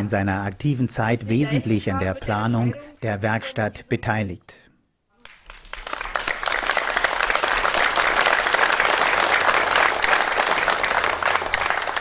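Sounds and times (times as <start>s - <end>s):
crowd clapping: 5.2s - 12.0s.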